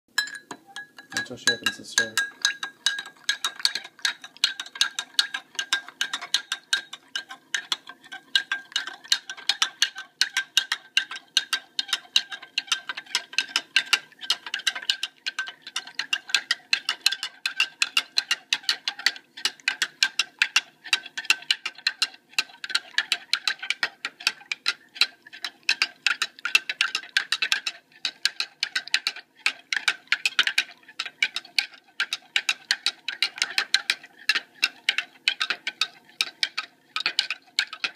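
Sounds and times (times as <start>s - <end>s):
glass ringing: 0.1s - 3.0s
spoon clinking against glass: 0.2s - 3.6s.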